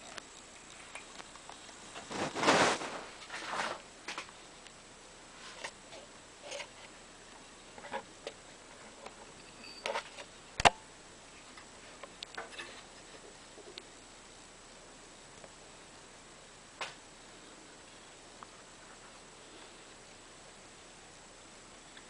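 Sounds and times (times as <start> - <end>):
faint high-pitched tone: 9.4 - 10.0.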